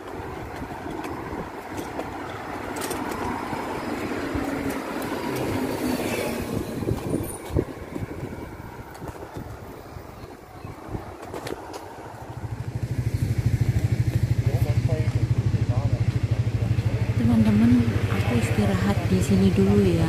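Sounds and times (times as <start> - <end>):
wind on microphone: 0.0 - 14.5
vehicle road noise rumble: 0.0 - 20.0.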